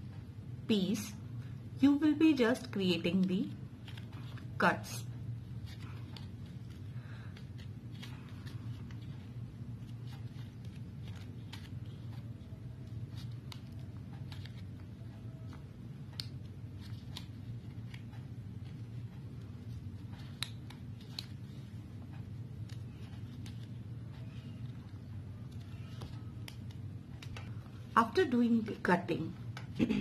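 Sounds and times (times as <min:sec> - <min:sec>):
scissors snipping paper pulp: 0:09.8 - 0:14.8.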